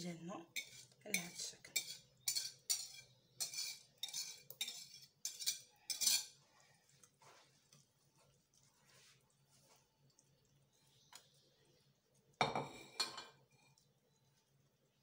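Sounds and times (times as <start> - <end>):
whisk scraping ceramic bowl: 0.5 - 6.4.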